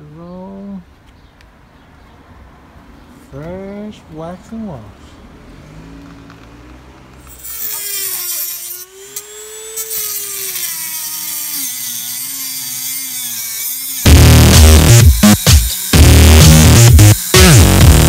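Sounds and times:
rotary tool cutting plastic: 7.2s - 14.1s, 14.9s - 16.3s, 17.0s - 17.4s
loud electronic music: 14.1s - 18.0s.

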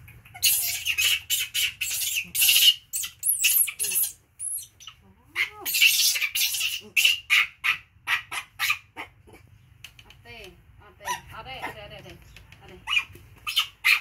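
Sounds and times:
monkeys screaming: 0.2s - 8.8s, 12.9s - 14.0s.

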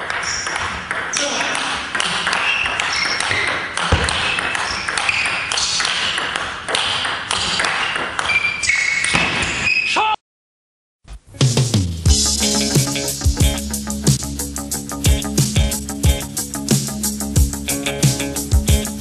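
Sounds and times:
music: 11.4s - 19.0s.

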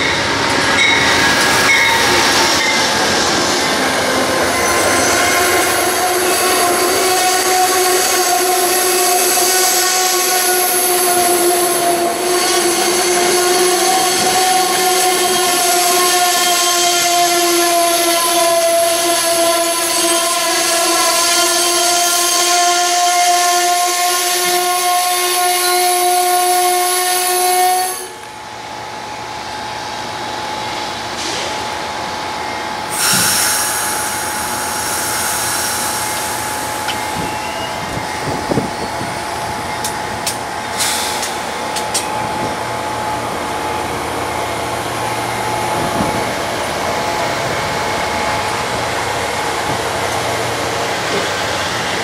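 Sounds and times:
train wheels rumbling: 0.0s - 52.0s
train horn blast: 4.6s - 28.3s.

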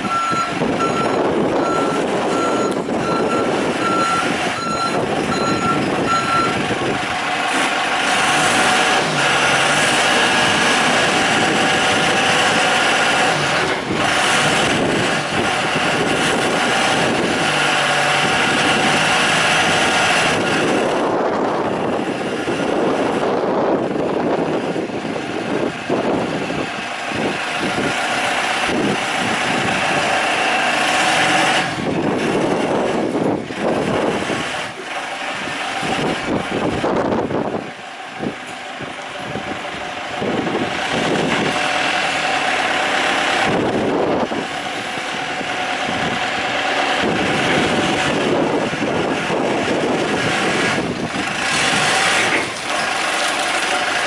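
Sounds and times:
forklift reversing alarm beeps: 0.0s - 6.6s
diesel engine running: 0.0s - 54.0s.

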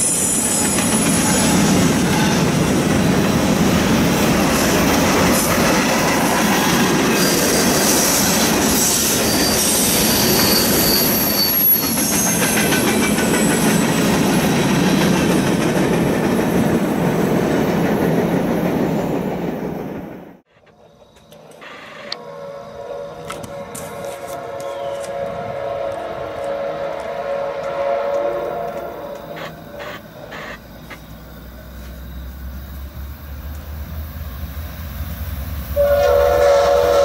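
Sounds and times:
train wheels rumbling on rails: 0.0s - 21.6s, 22.2s - 37.0s
high-pitched wheel squeals: 8.8s - 12.7s, 21.5s - 25.4s, 28.2s - 30.7s.

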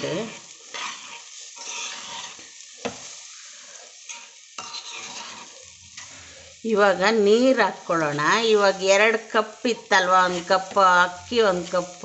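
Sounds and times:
spoon scraping in a pot: 0.0s - 7.0s, 9.8s - 12.0s
food sizzling in oil: 0.0s - 12.0s.

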